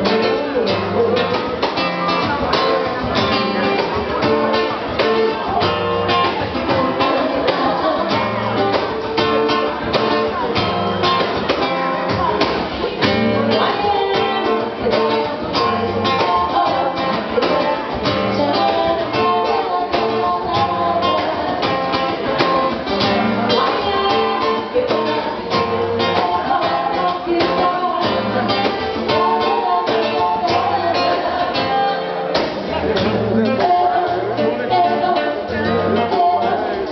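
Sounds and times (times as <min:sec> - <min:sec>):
strummed acoustic guitar: 0:00.0 - 0:36.9
women singing together: 0:06.3 - 0:09.1, 0:12.1 - 0:32.3.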